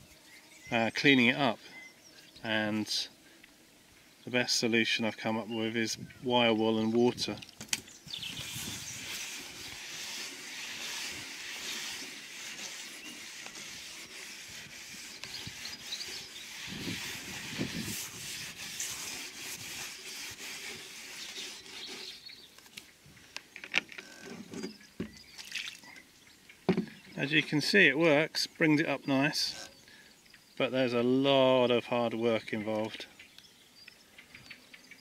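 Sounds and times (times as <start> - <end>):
wire wool scrubbing metal roof: 8.2 - 22.3.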